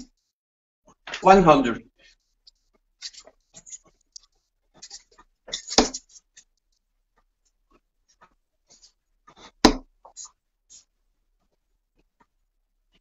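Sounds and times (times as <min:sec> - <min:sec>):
darts thudding into dartboard: 0:09.6 - 0:09.9.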